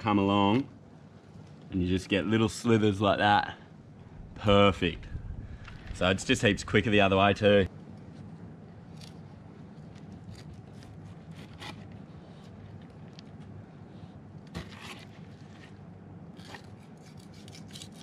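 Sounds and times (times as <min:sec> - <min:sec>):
low steady hum: 0:00.0 - 0:18.0
knife blade scraping bone: 0:16.4 - 0:18.0.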